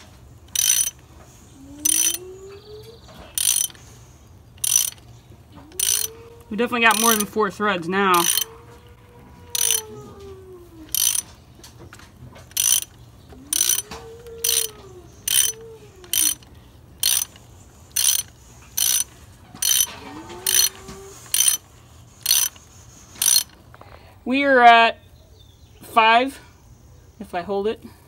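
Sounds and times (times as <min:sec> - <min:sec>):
ratchet clicking: 0:00.0 - 0:01.0, 0:01.8 - 0:02.2, 0:03.3 - 0:03.8, 0:04.5 - 0:05.1, 0:05.7 - 0:06.2, 0:06.8 - 0:07.4, 0:08.1 - 0:08.5, 0:09.5 - 0:09.9, 0:10.9 - 0:11.3, 0:12.5 - 0:20.7, 0:21.3 - 0:21.6, 0:22.2 - 0:23.6.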